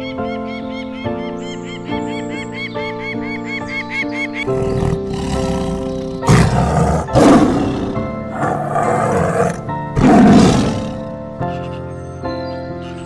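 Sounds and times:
gentle piano music: 0:00.0 - 0:13.0
tiger roaring: 0:04.4 - 0:11.1.

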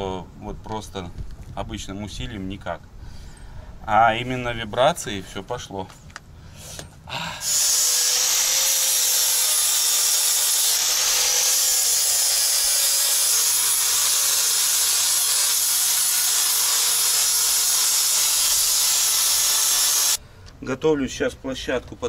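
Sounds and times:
angle grinder grinding steel: 0:07.4 - 0:20.2.

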